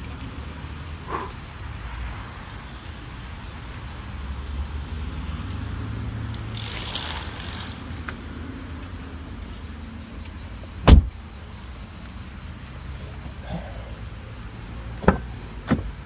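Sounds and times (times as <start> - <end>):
car door shutting: 10.8 - 11.2, 15.0 - 16.0.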